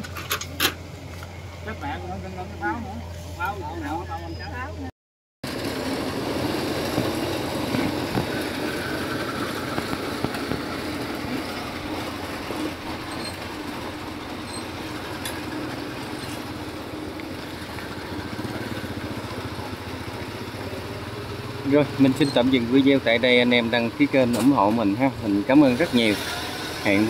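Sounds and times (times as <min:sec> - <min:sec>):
engine running with mechanical clatter: 0:00.0 - 0:04.1, 0:05.4 - 0:27.0.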